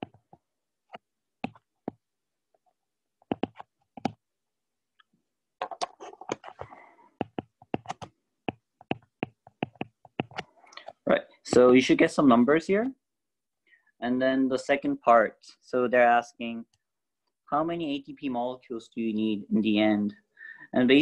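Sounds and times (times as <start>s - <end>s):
stylus tapping on glass screen: 7.2s - 10.5s.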